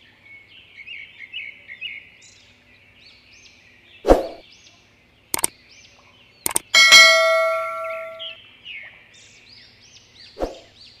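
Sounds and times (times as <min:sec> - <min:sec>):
mouse clicks: 0:06.5 - 0:06.7
bright bell ding: 0:06.7 - 0:08.4.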